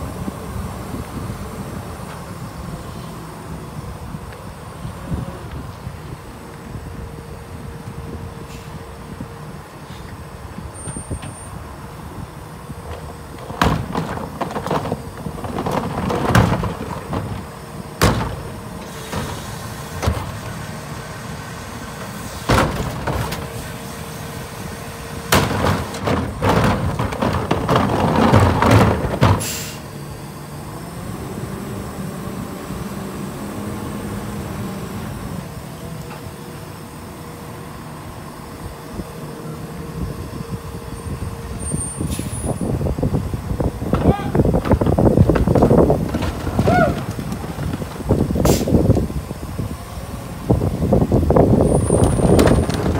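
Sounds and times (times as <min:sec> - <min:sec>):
garbage truck engine humming: 0:00.0 - 0:52.9
trash carts banging and rattling: 0:10.5 - 0:31.9, 0:41.0 - 0:52.9
trash falling into hopper: 0:12.9 - 0:20.6, 0:22.0 - 0:23.7, 0:25.3 - 0:29.8, 0:43.9 - 0:49.0, 0:51.8 - 0:52.9.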